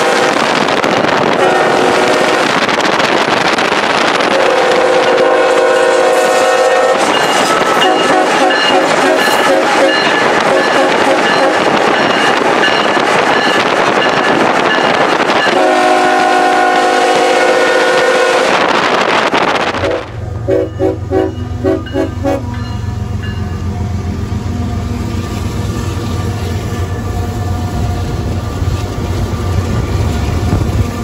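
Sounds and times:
train horn: 0.0 - 2.7, 4.2 - 11.8, 15.4 - 18.8, 19.7 - 22.7
road and wind noise: 0.0 - 4.4, 6.9 - 15.6, 18.4 - 31.0
diesel locomotives rumbling: 0.0 - 31.0.

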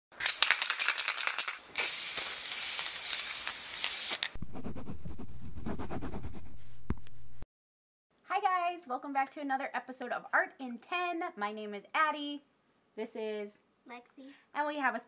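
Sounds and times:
chalk scratching on chalkboard: 4.3 - 7.2.

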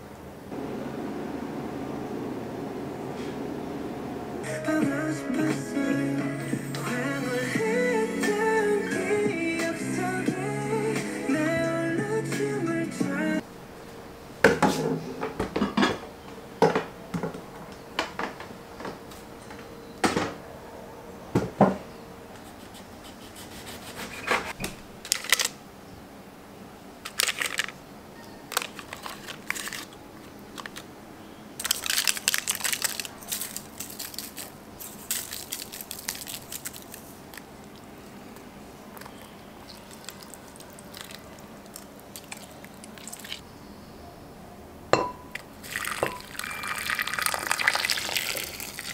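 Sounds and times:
parchment paper crinkling: 28.5 - 30.9, 31.6 - 43.4
ceramic lid knocking: 45.0 - 45.2.

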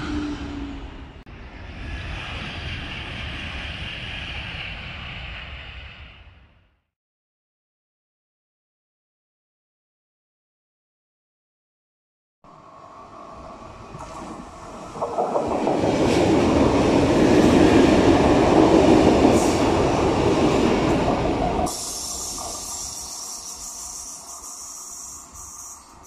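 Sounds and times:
train rumble and wheel noise: 0.0 - 6.6, 12.5 - 26.0.

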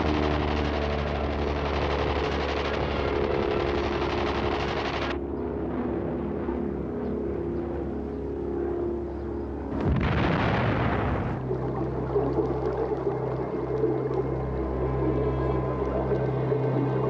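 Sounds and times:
aircraft engines droning: 0.0 - 17.0
loud blast: 9.8 - 11.4.

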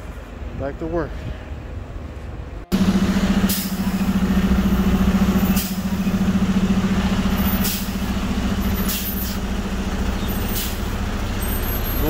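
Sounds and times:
diesel engine droning: 2.5 - 12.0
air hissing: 7.4 - 8.1, 8.7 - 9.4, 10.4 - 11.0.

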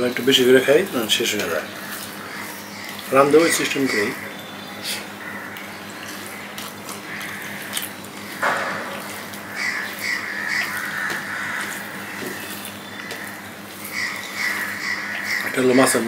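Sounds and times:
fingers mixing food on steel plate: 5.4 - 16.0.

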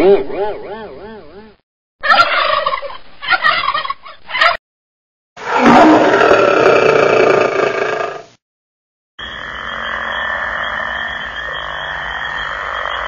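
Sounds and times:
warbling gobble-like call: 2.0 - 4.6
lion roar: 5.4 - 8.3.

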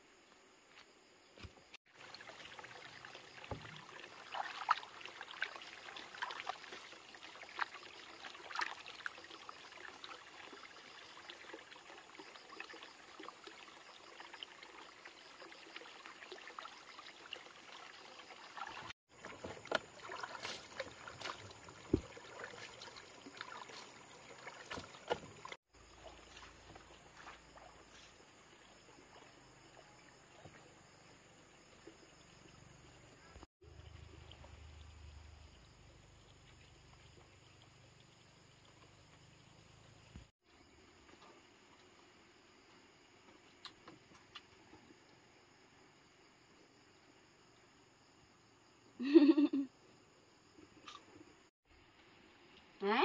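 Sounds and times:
water running from a pipe: 1.9 - 28.6.

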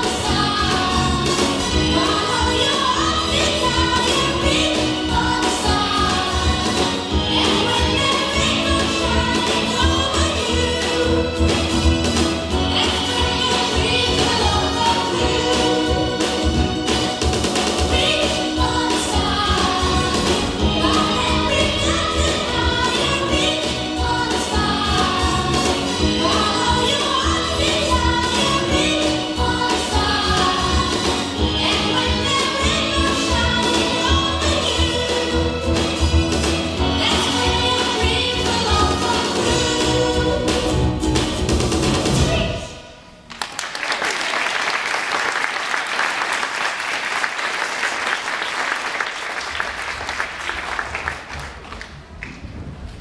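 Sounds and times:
song with singing: 0.0 - 43.2
children applauding: 43.3 - 52.4.

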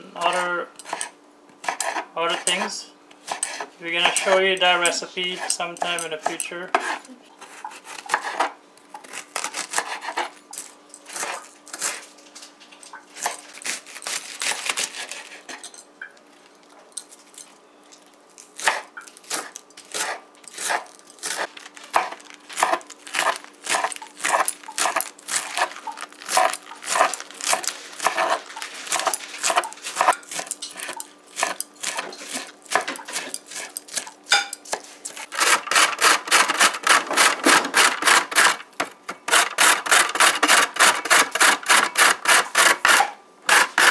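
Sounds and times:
carrot grated on metal grater: 35.3 - 38.6, 39.3 - 43.9.

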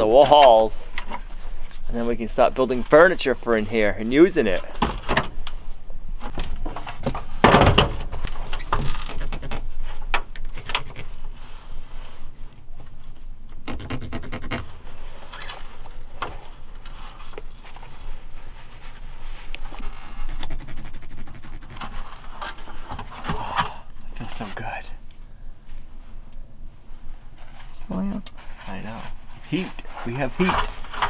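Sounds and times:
thump on wooden joists: 6.3 - 9.6
knocks on wood framing: 7.0 - 8.1
scratching and rubbing on wood: 13.7 - 23.2, 27.3 - 31.0.

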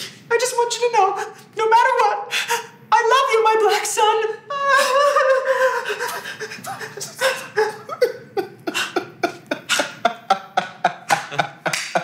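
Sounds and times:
man laughing hard: 4.5 - 12.0.

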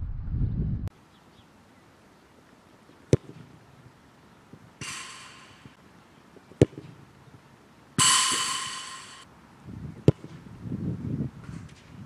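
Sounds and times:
football kicked with sharp thud: 6.6 - 7.0, 10.0 - 10.4.

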